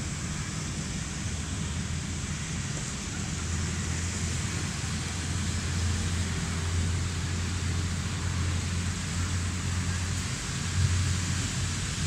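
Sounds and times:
train approaching with rumble: 0:00.0 - 0:12.0.

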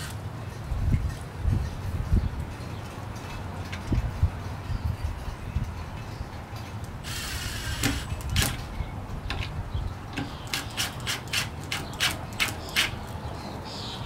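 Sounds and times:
cordless drill driving screw: 0:07.1 - 0:08.6, 0:10.2 - 0:12.9
sharp clicks: 0:10.1 - 0:13.2.

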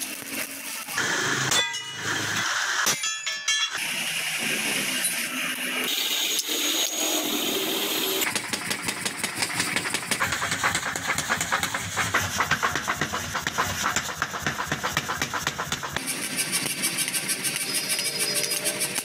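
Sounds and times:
power hammer pounding steel: 0:01.3 - 0:03.9, 0:08.2 - 0:19.0.

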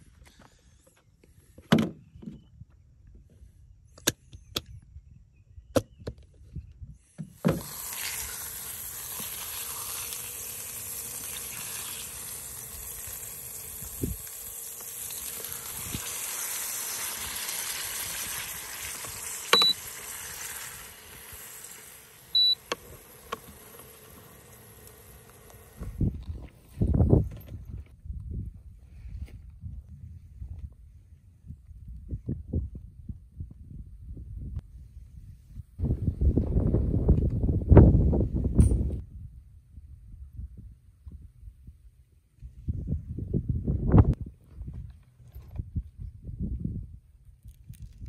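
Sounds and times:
patty sizzling in hot oil: 0:07.4 - 0:25.8
short high beeps: 0:19.5 - 0:19.8, 0:22.3 - 0:22.6.

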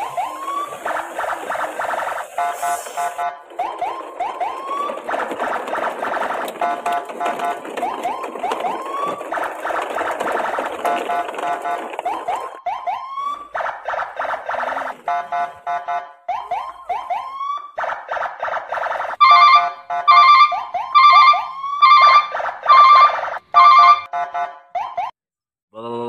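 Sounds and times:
electronic siren whoops: 0:00.0 - 0:25.1
loud pulsed siren blasts: 0:00.0 - 0:25.2
rapid pulsed beeping: 0:00.8 - 0:03.4.

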